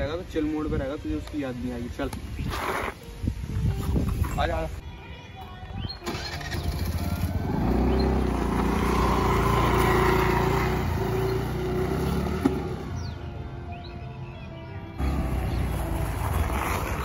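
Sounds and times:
scooter engine running: 0:06.1 - 0:12.7.

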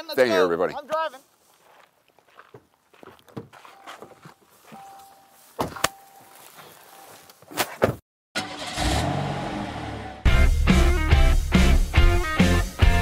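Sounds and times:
faint steady chime tone: 0:03.6 - 0:07.3
rising music sting: 0:08.5 - 0:11.8.

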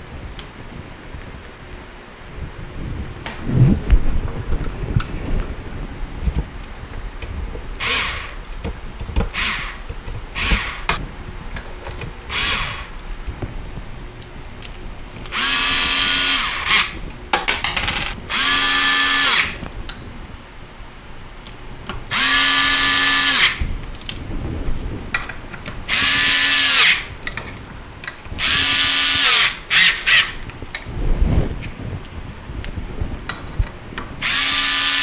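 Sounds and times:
cordless drill driving screws: 0:07.8 - 0:08.4, 0:09.2 - 0:11.0, 0:12.3 - 0:12.9, 0:15.3 - 0:17.0, 0:18.3 - 0:19.6, 0:22.1 - 0:23.6, 0:25.9 - 0:27.1, 0:28.4 - 0:30.4, 0:34.2 - 0:35.0.

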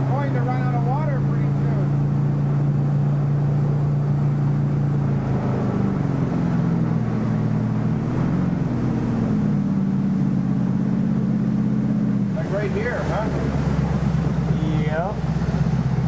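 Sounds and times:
motorboat engine running: 0:00.0 - 0:16.0
water rushing: 0:00.0 - 0:16.0
wind: 0:00.0 - 0:16.0.

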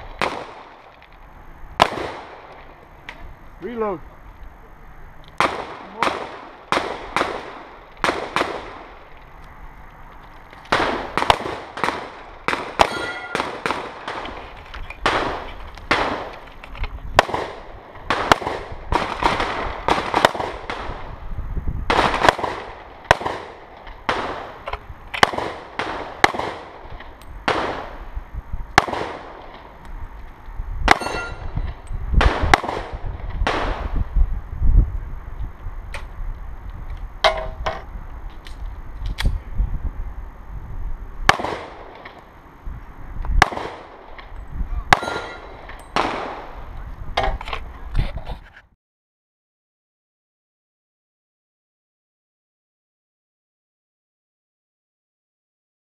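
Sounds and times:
handgun shots: 0:10.7 - 0:14.3, 0:30.9 - 0:31.5, 0:44.9 - 0:46.3
short ringing tone: 0:12.9 - 0:13.4, 0:31.0 - 0:31.7.

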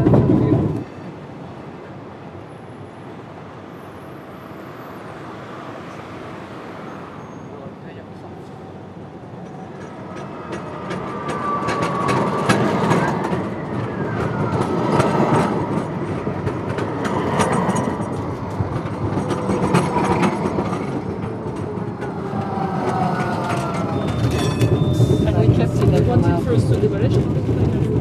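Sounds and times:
tram wheels rumbling on rails: 0:00.0 - 0:28.0.

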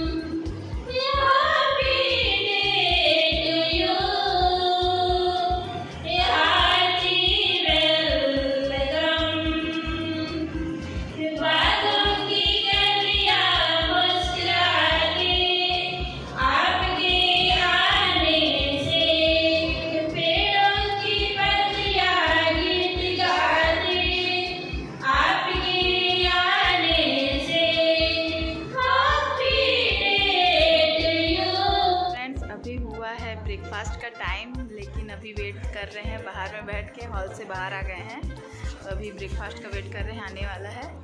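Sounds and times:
women singing into microphones: 0:00.0 - 0:32.7.

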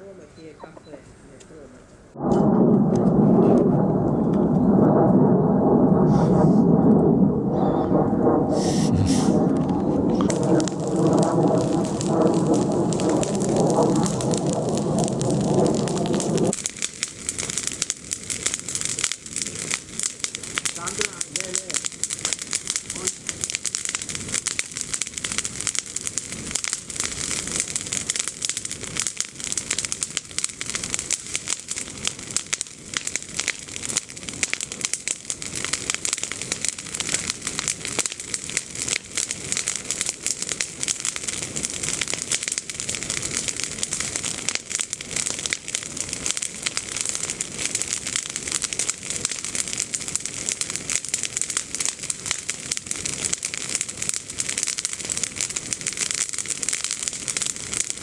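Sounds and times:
branches crackling in a bonfire: 0:07.9 - 0:58.0.

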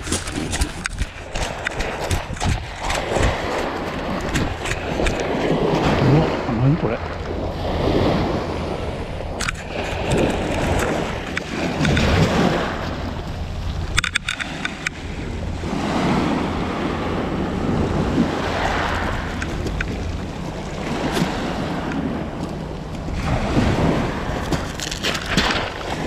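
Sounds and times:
waves washing up pebble beach: 0:00.0 - 0:13.2, 0:13.8 - 0:22.4, 0:23.0 - 0:26.0
wind buffeting microphone: 0:00.0 - 0:26.0
sharp clicks: 0:13.9 - 0:15.0.

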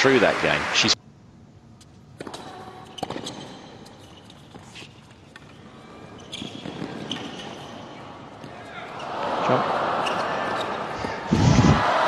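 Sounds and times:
low crowd hush: 0:09.3 - 0:12.0.

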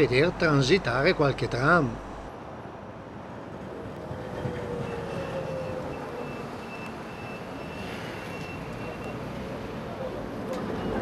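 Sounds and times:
low tram whine: 0:01.9 - 0:11.0
tram wheels squealing: 0:04.1 - 0:11.0.

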